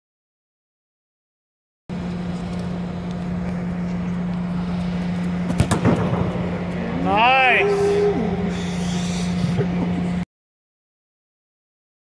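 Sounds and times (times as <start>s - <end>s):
low hum and rush of air: 1.9s - 10.2s
foot kicking football: 5.4s - 6.5s.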